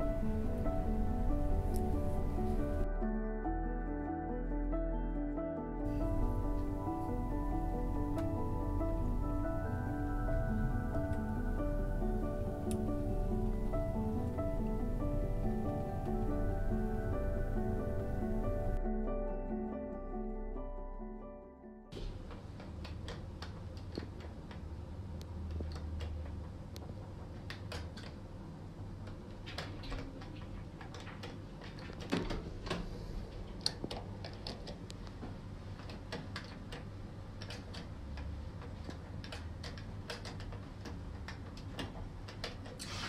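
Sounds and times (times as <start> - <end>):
low steady hum: 0.0 - 27.3.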